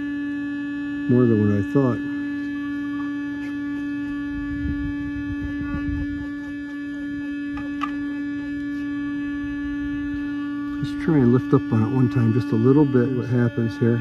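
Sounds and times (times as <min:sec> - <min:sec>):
vibration motor humming: 0:00.0 - 0:14.0.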